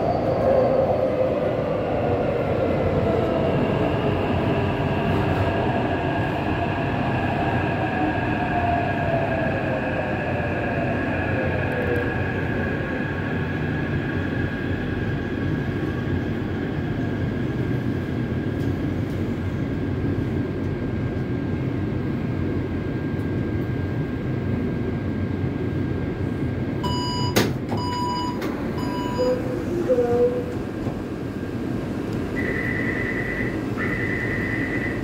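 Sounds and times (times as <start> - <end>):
train cabin rumble: 27.3 - 35.0.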